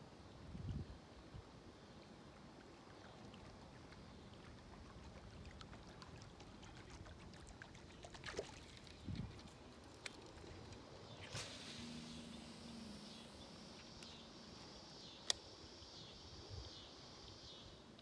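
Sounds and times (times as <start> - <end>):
faint outdoor ambience by water: 0.0 - 18.0
light clicks: 15.2 - 15.5.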